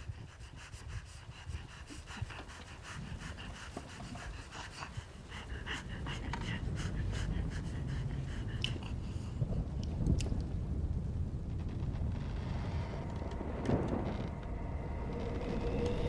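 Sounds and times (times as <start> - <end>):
low rumble: 5.2 - 16.0.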